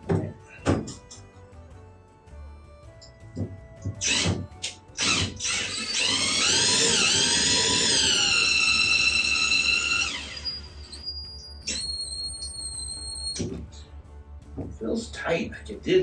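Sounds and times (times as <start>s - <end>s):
cordless drill driving a screw: 4.0s - 11.1s.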